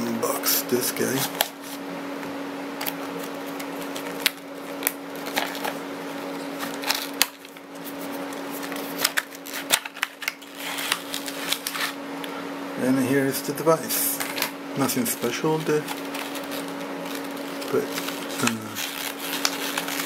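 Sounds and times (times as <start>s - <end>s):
steady low hum: 0.0s - 20.0s
plastic packaging crinkling: 2.8s - 12.0s, 15.1s - 20.0s.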